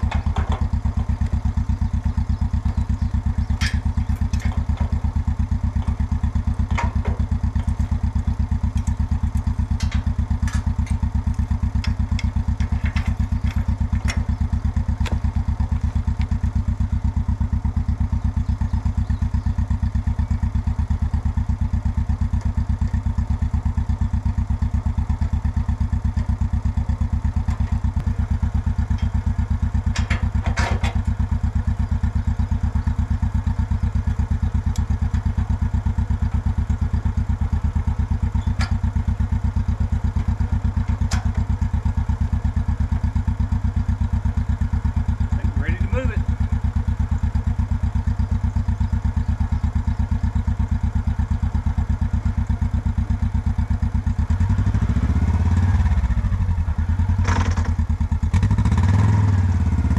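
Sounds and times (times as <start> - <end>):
utility vehicle engine throbbing: 0.0 - 59.9
short rattle: 3.2 - 15.7.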